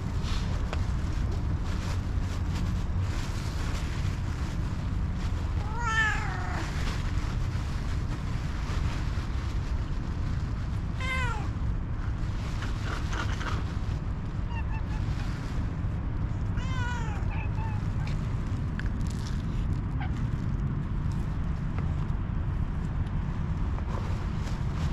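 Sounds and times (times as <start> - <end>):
steady low rumble: 0.0 - 24.9
cat meowing: 5.6 - 6.8, 11.0 - 11.5, 14.4 - 15.2, 16.5 - 18.2.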